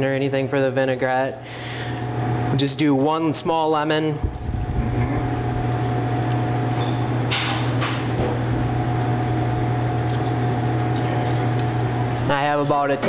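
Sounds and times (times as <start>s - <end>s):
low mechanical hum: 0.0s - 13.0s
lemon juice squirting: 10.0s - 11.8s.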